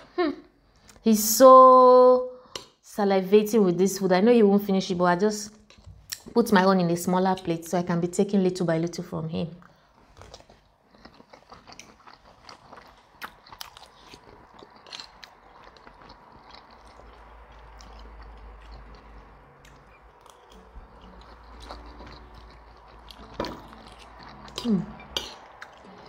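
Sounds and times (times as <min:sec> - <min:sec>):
chewing noodles: 0:09.6 - 0:26.0.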